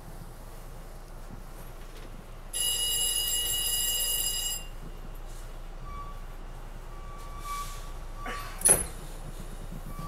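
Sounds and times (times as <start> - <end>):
low hum of rail car: 0.0 - 10.0.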